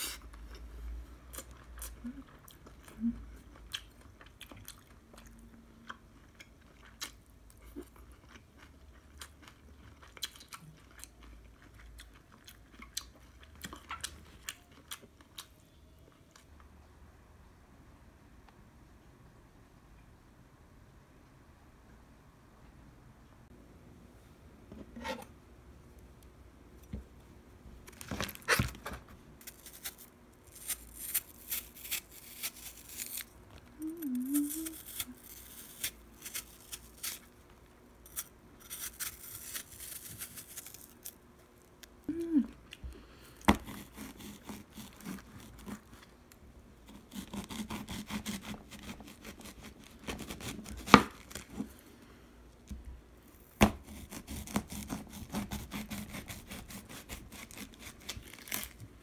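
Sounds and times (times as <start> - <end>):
knife cutting crisp fruit: 43.4 - 46.1, 46.9 - 51.7, 53.3 - 58.8.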